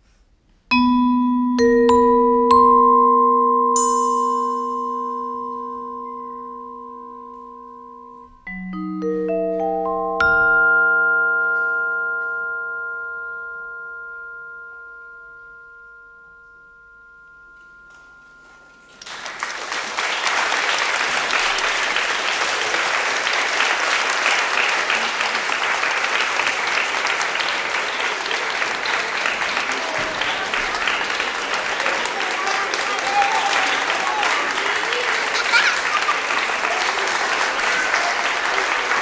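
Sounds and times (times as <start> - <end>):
vibraphone chord ringing: 0.7 - 19.3
audience applause: 18.9 - 39.0.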